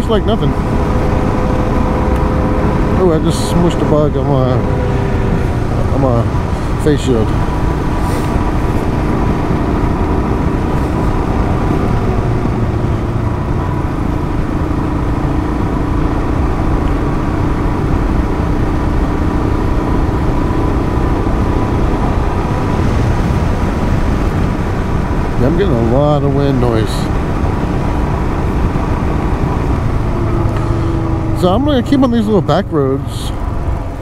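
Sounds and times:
wind noise on microphone: 4.6s - 25.6s.

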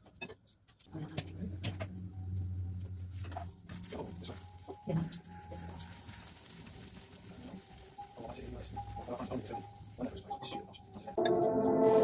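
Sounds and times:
oil sizzling in a pan: 1.0s - 12.0s.

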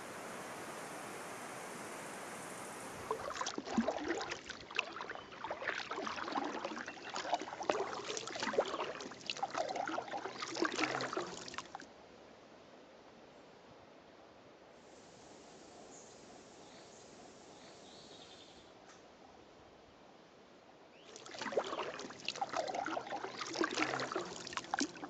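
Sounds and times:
paddle splashing in water: 0.0s - 11.8s, 21.0s - 25.0s.

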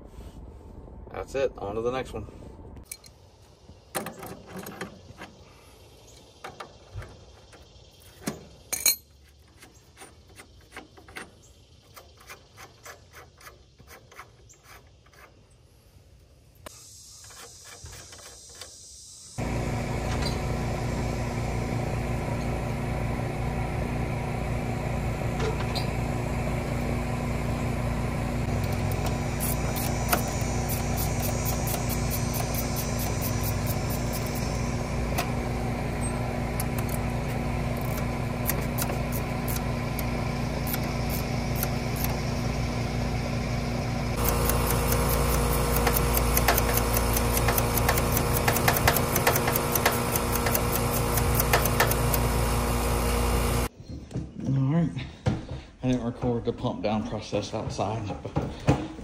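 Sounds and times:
steady motor: 19.4s - 53.7s.

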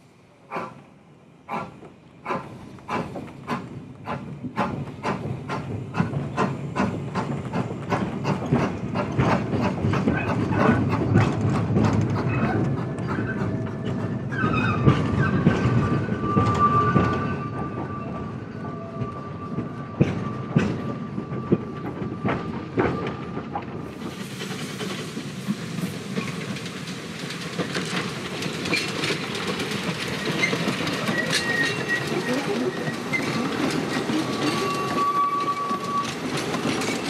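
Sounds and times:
steam locomotive exhaust beats: 0.3s - 32.2s
long high squeal: 14.3s - 23.3s, 31.0s - 36.4s.

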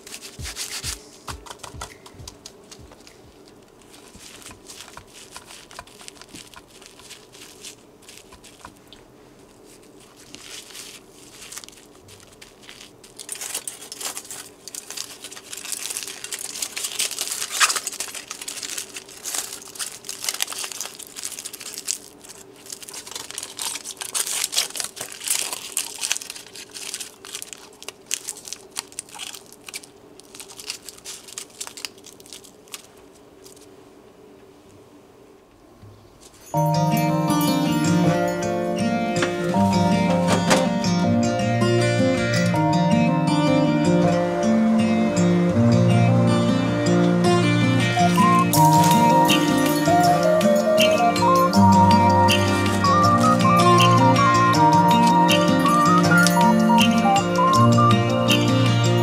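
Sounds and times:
aluminium foil crinkling: 0.0s - 33.8s, 36.2s - 36.6s, 48.0s - 59.0s.

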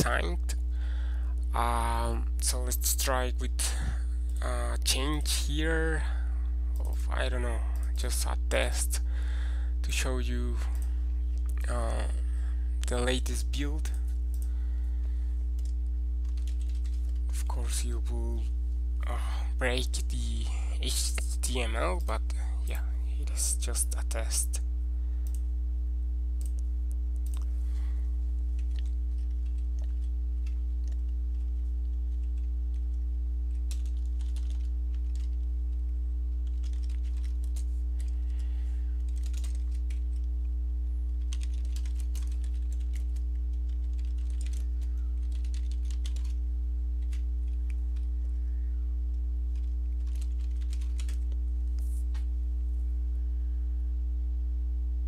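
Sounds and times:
steady low hum: 0.0s - 55.0s
typing on computer keyboard: 15.6s - 17.2s, 33.6s - 35.4s, 36.4s - 38.1s, 39.1s - 40.0s, 41.2s - 46.4s, 49.6s - 51.2s.

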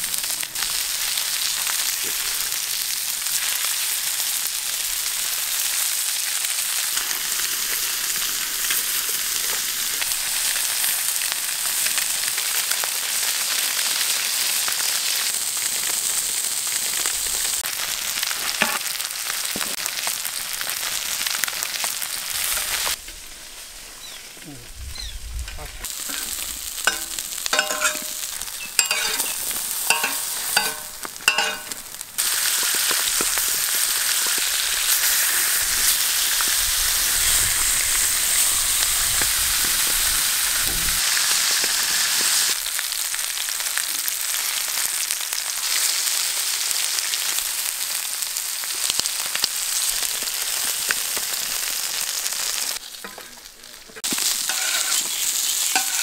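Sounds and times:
fish sizzling in oil: 0.0s - 25.2s, 25.8s - 56.0s
metal spatula scraping pan: 26.0s - 31.8s, 54.4s - 56.0s.

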